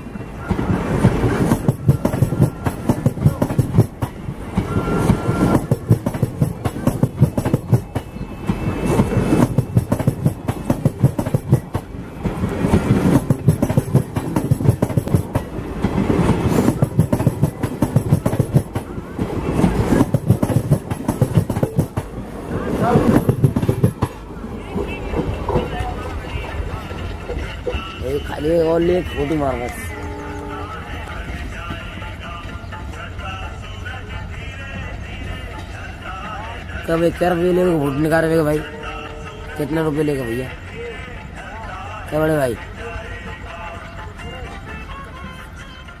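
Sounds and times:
train wheels clattering over rail joints: 0.5s - 24.2s.

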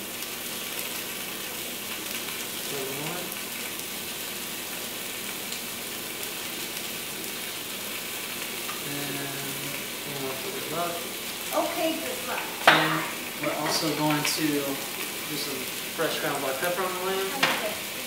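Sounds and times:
onions sizzling in fat: 0.0s - 18.0s.

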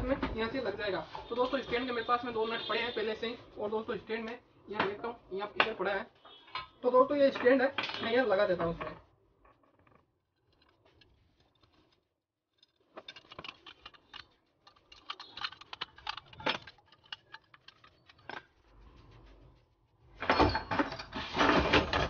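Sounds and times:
metal clinks and rattles: 9.4s - 19.1s, 20.2s - 22.0s.

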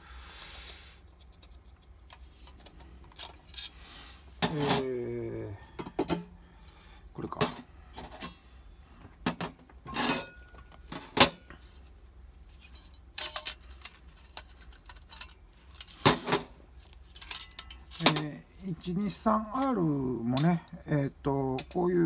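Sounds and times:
metal parts clinking and knocking: 5.8s - 6.3s, 12.5s - 18.4s.

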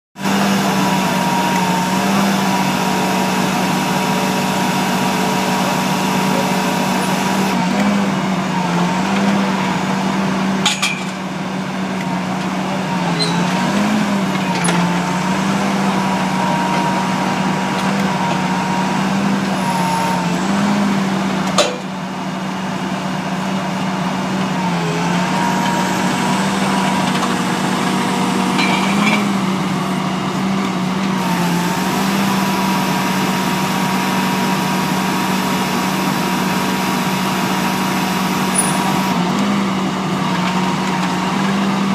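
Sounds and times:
drilling rig engine running: 0.2s - 41.9s.

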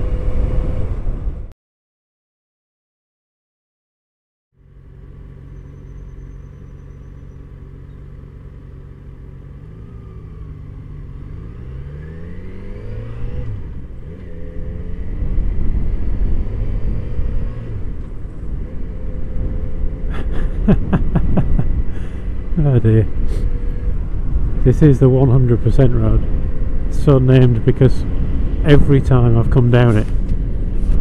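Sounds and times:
motorcycle engine accelerating: 4.6s - 31.0s
wind noise: 15.0s - 18.7s, 19.3s - 31.0s.

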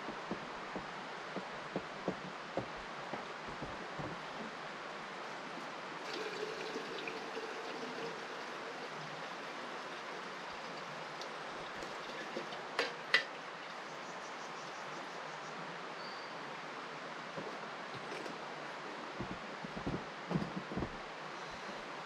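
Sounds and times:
river water running: 0.0s - 22.0s.

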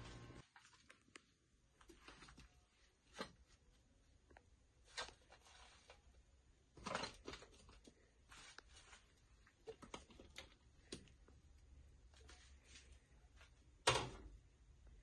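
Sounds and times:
crisp bread rustling and clattering: 6.7s - 10.6s.

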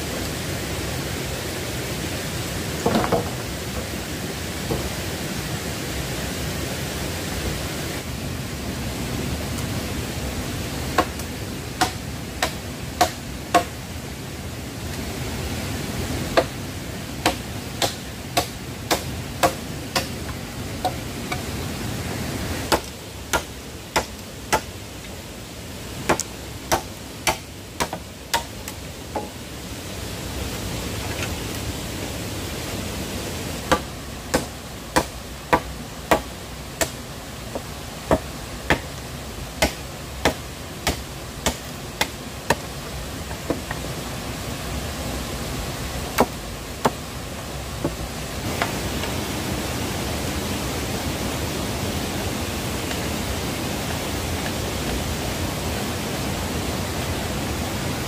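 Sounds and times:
stream rushing: 0.0s - 58.0s
machete chopping bamboo: 11.0s - 13.8s, 16.4s - 16.6s, 17.2s - 21.4s, 22.7s - 24.7s, 26.1s - 29.3s, 33.7s - 37.0s, 37.6s - 38.9s, 39.6s - 42.7s, 46.2s - 47.0s.

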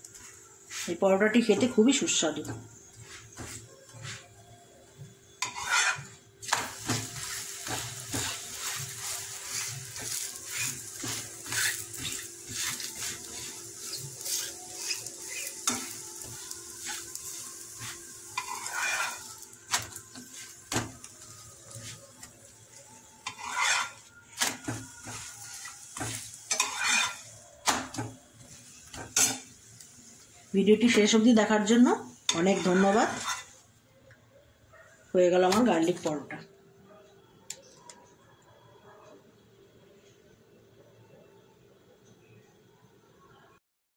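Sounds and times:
bread sizzling in a pan: 0.0s - 4.4s, 5.0s - 33.7s
metal spatula scraping a pan: 5.4s - 21.0s, 21.7s - 30.2s, 30.8s - 33.6s.

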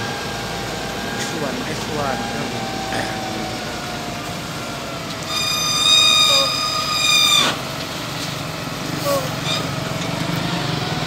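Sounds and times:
diesel engine running: 0.0s - 11.0s
loud high squeal: 5.2s - 7.7s, 9.0s - 9.7s.

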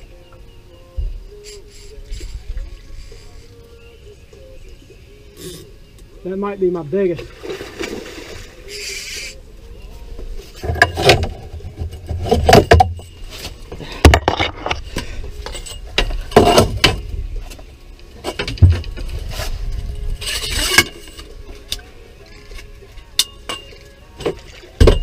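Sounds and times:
short hissing noise: 8.7s - 9.4s.

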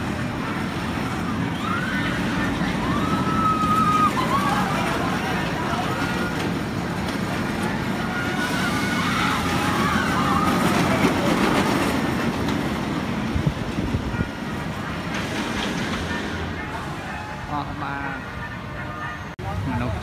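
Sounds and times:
faint high wavering voices: 0.0s - 11.6s
roller coaster rumbling on track: 0.0s - 20.0s.

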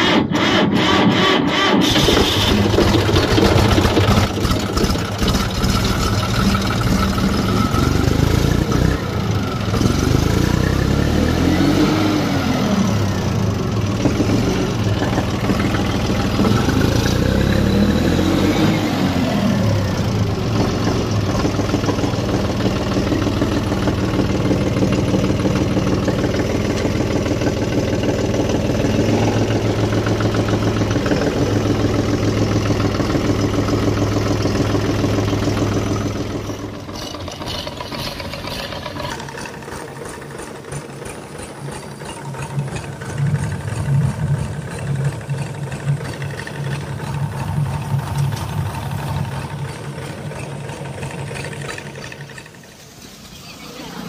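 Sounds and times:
tractor diesel engine revving: 0.0s - 54.0s.

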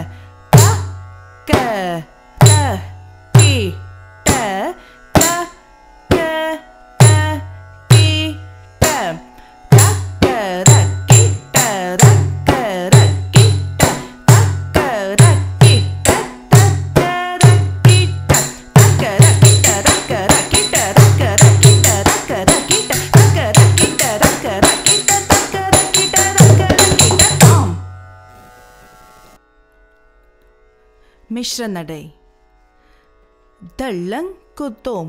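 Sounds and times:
hand drum rhythm: 9.7s - 27.8s.

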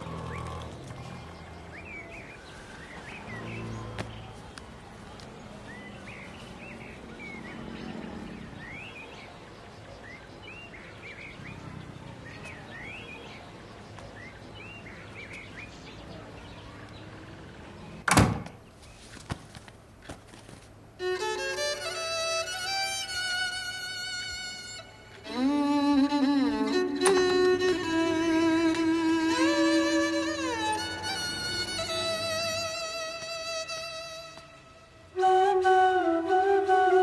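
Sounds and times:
violin music: 21.0s - 37.0s.

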